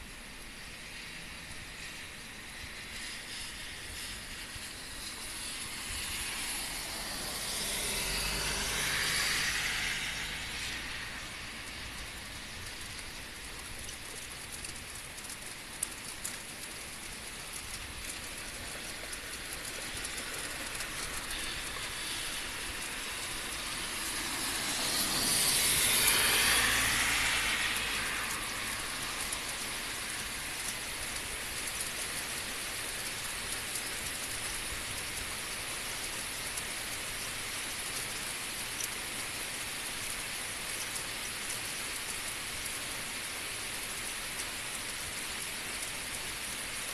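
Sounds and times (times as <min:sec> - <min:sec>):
heavy rain on asphalt: 0:00.0 - 0:46.9
vehicle passing: 0:06.3 - 0:11.5, 0:22.8 - 0:29.6.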